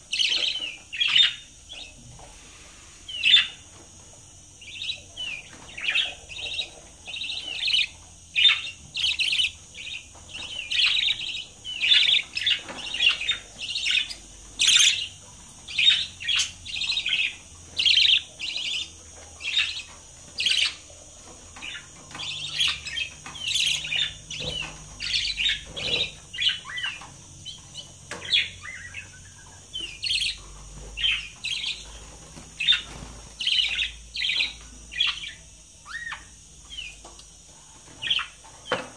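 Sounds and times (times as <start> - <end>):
budgerigars chirping: 0.1 - 2.0, 3.1 - 3.7, 4.6 - 37.1, 38.0 - 38.9.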